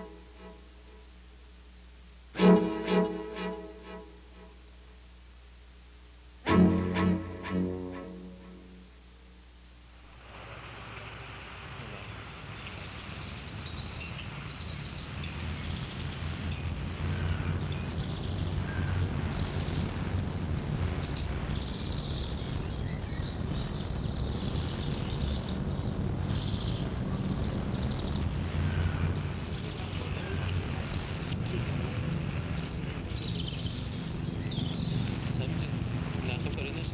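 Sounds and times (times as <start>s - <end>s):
small birds chirping: 11.5s - 36.9s.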